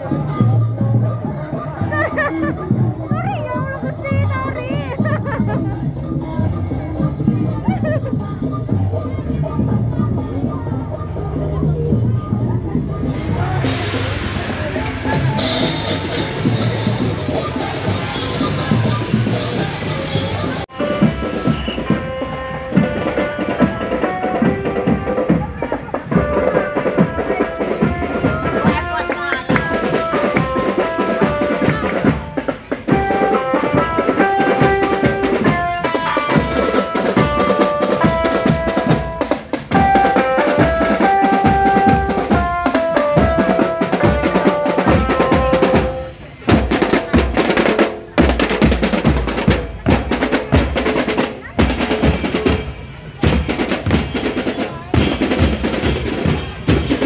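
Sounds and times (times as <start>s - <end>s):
marching drum band: 0.1s - 10.5s, 11.2s - 57.0s
snare and bass drums beating: 20.8s - 57.0s
melody of held notes: 33.0s - 46.3s.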